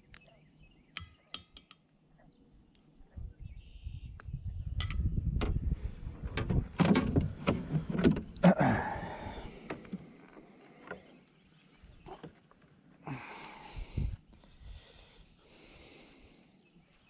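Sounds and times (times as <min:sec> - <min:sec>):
low rumbling handling noise: 0:04.6 - 0:11.1.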